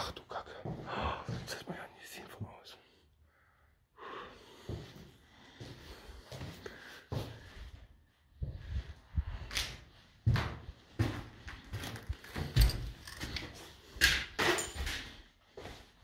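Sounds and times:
footsteps in a large hall: 0:00.1 - 0:01.7, 0:04.6 - 0:12.6.

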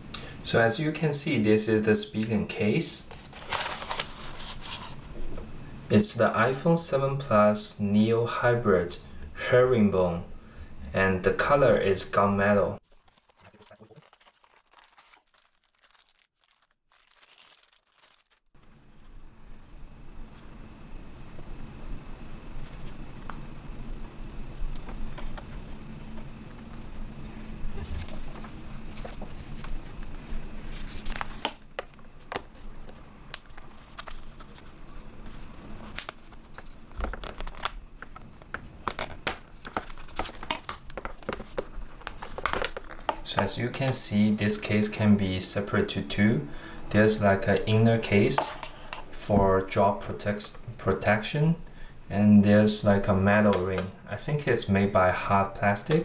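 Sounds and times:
room tone hum and hiss: 0:00.0 - 0:56.0
plastic bag crinkling: 0:12.8 - 0:18.6, 0:30.6 - 0:43.5
plastic scraping: 0:30.8 - 0:43.5.

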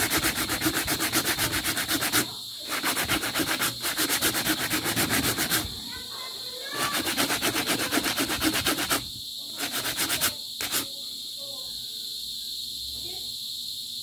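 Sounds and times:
hand rubbing along metal wire: 0:00.0 - 0:05.8, 0:06.7 - 0:10.9
high insect trill: 0:00.0 - 0:14.0.

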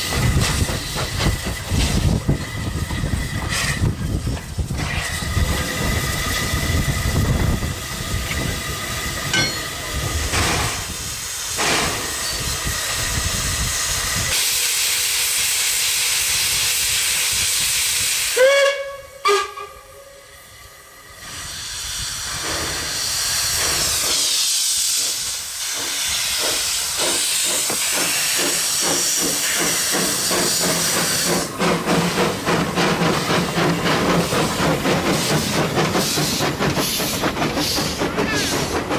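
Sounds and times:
steam hiss: 0:00.0 - 0:38.9
steam whistle: 0:18.2 - 0:20.6.

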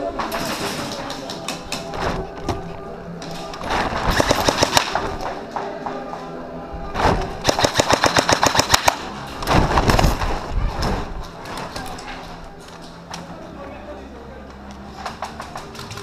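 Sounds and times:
airsoft rifle full-auto bursts: 0:07.4 - 0:09.0.

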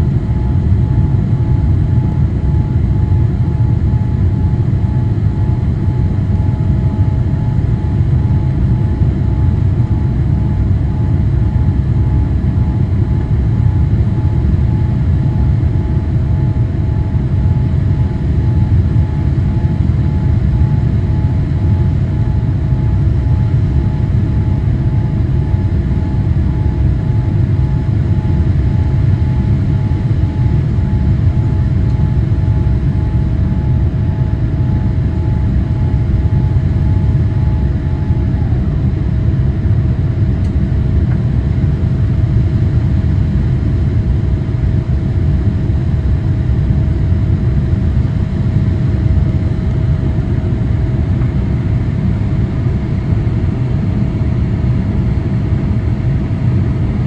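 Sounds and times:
jet engines and airflow rumble: 0:00.0 - 0:57.0.

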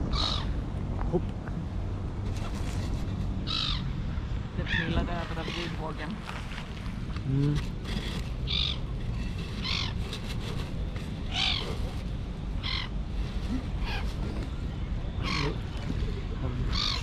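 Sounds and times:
bird giving harsh calls: 0:00.1 - 0:00.6, 0:03.4 - 0:03.9, 0:08.4 - 0:10.3, 0:11.3 - 0:12.0, 0:12.6 - 0:13.0, 0:15.1 - 0:15.8, 0:16.6 - 0:17.0.

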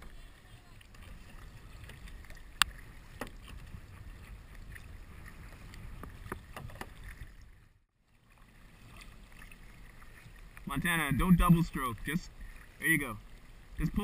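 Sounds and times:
wind rumble on microphone: 0:00.0 - 0:07.7
paddle strokes splashing: 0:00.0 - 0:14.0.

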